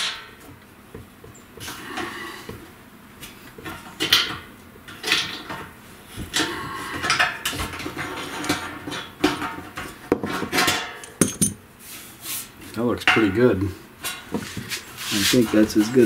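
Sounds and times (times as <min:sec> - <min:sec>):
metal tools clinking: 0:10.6 - 0:11.6.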